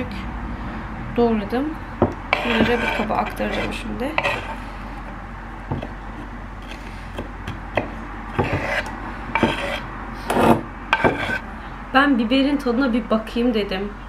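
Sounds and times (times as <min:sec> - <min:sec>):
knife scraping wooden cutting board: 0:02.3 - 0:04.8, 0:05.7 - 0:11.4.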